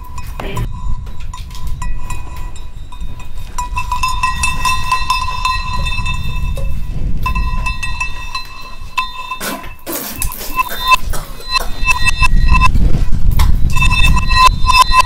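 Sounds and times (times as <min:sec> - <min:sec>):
cowbells clanking: 0:00.0 - 0:12.8
steady low rumble: 0:10.6 - 0:15.0.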